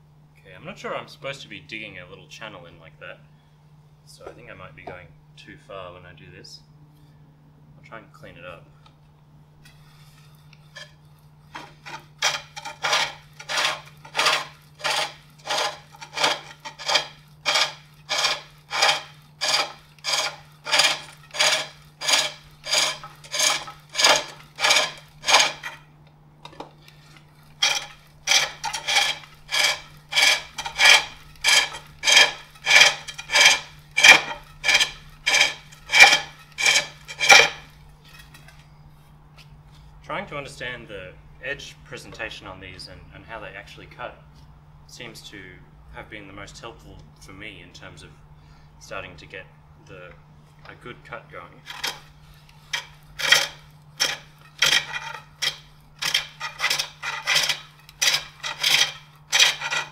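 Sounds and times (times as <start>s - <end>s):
steady low hum: 0.0s - 59.9s
hook tool scraping wood: 9.7s - 25.9s, 26.8s - 38.5s, 51.6s - 59.9s.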